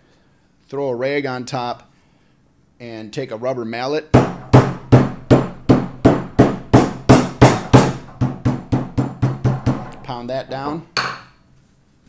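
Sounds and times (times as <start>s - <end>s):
rubber mallet pounding plastic plate: 4.1s - 10.4s.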